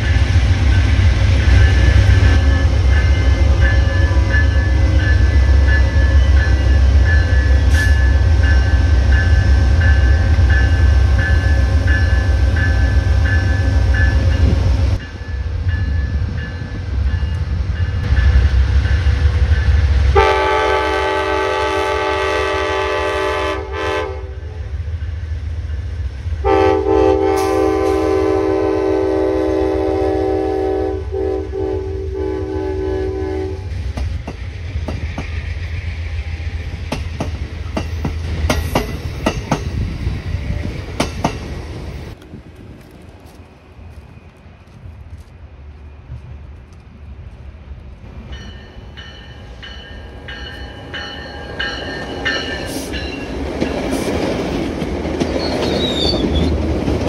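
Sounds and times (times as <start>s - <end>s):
diesel locomotive engines: 0.0s - 57.0s
train air horn: 20.1s - 24.6s, 26.4s - 33.7s
train wheels clicking on rails: 33.6s - 45.4s, 46.1s - 57.0s.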